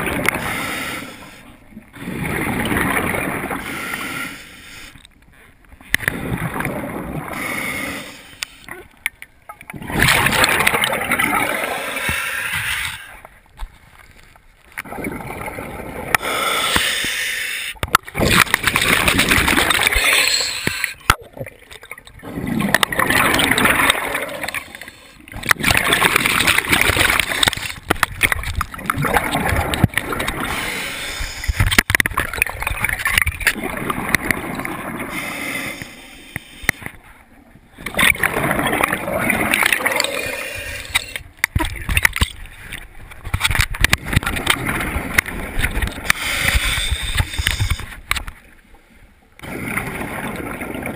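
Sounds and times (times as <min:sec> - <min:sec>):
underwater exhaled bubbles: 0:01.7 - 0:04.3, 0:05.9 - 0:08.9, 0:09.6 - 0:13.3, 0:14.8 - 0:17.2, 0:17.8 - 0:36.0, 0:37.6 - 0:42.9, 0:49.4 - 0:50.9.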